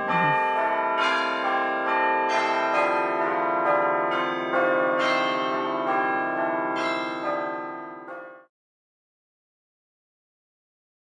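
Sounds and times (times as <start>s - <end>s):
bells ringing: 0.0s - 8.4s.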